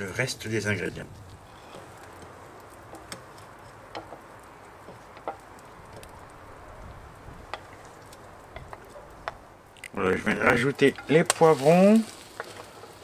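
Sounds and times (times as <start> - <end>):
pops and crackles: 0.8 - 13.0
sauce sizzling: 0.9 - 13.0.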